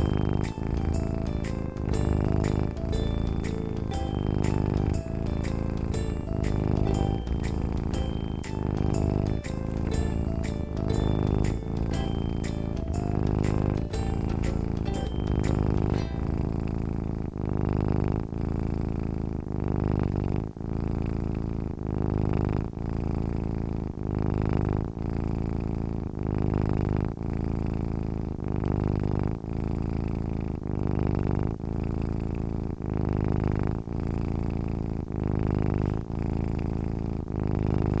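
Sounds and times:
cat purring: 0.0 - 38.0.

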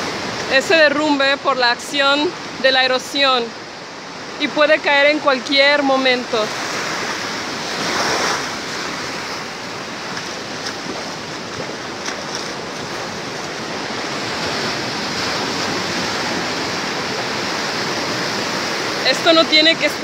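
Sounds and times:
surf washing over rocks: 0.0 - 20.0.

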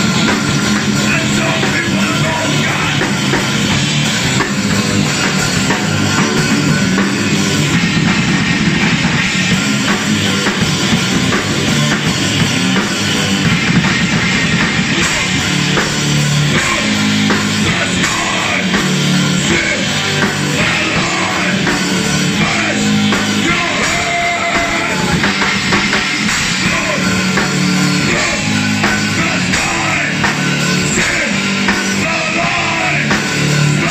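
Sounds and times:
heavy metal band playing: 0.0 - 33.9.

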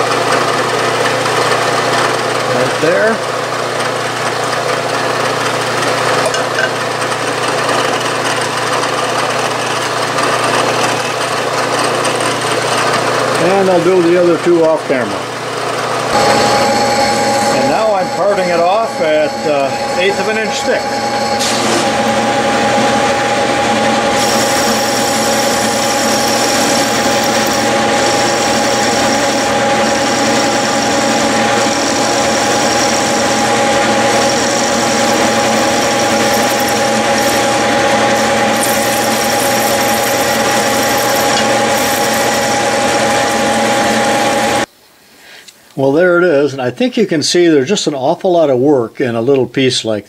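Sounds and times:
lathe motor hum: 0.0 - 44.7
thin high cutting whine: 13.1 - 44.7.

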